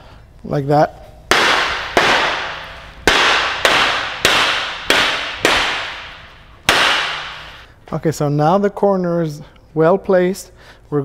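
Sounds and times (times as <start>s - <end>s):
rubber mallet knocking metal: 1.3s - 7.4s.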